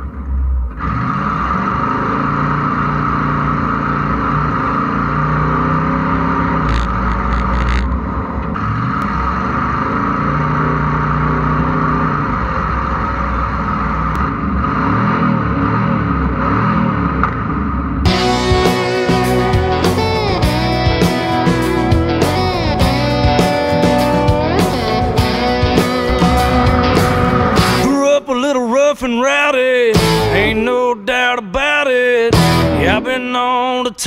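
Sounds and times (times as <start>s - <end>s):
wind and road noise: 0.0s - 18.1s, 24.7s - 27.9s
engine revving: 0.0s - 27.9s, 30.0s - 30.6s, 32.3s - 33.6s.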